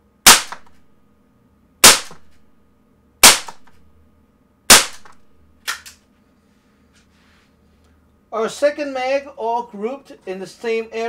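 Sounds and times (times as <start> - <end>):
pellet pistol shots: 0.2 - 0.8, 1.8 - 2.3, 3.2 - 3.8, 4.7 - 5.3.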